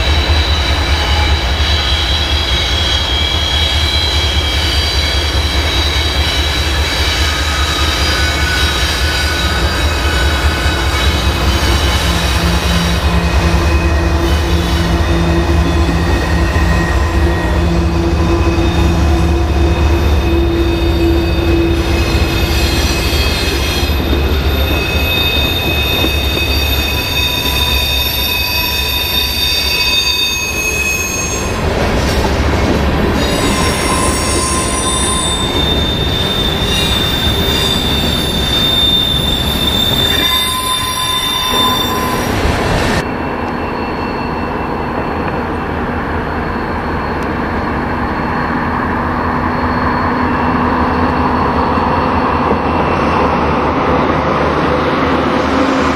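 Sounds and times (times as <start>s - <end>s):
distant diesel locomotive rumble: 0.0s - 29.8s
freight train rolling past: 0.0s - 55.9s
train wheels squealing: 0.0s - 55.9s.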